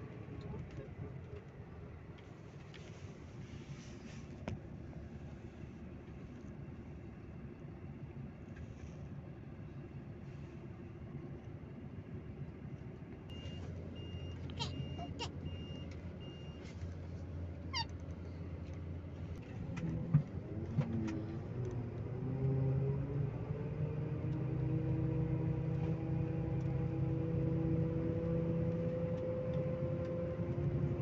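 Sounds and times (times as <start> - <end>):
short electronic beeps: 13.3 - 16.6.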